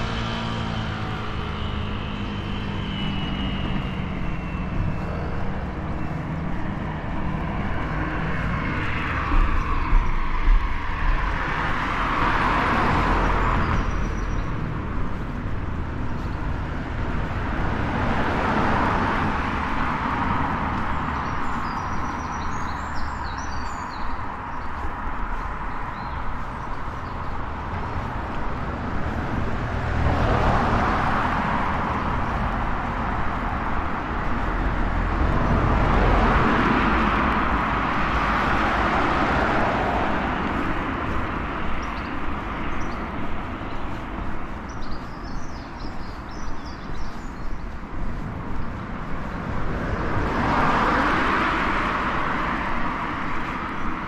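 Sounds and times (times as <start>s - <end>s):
cars passing: 0.0s - 54.0s
low traffic rumble: 0.0s - 54.0s.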